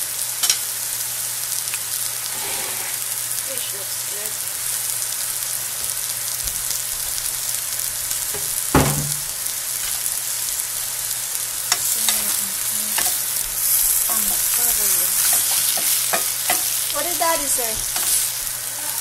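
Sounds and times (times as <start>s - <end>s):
food sizzling in a frying pan: 0.0s - 19.0s
wooden spatula scraping a pan: 2.2s - 3.2s
thump: 8.4s - 9.3s.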